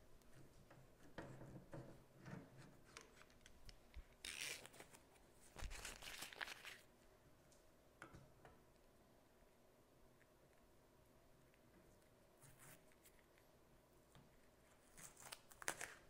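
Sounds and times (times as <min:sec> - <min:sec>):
tape being peeled off: 0:02.9 - 0:06.9, 0:14.8 - 0:16.0.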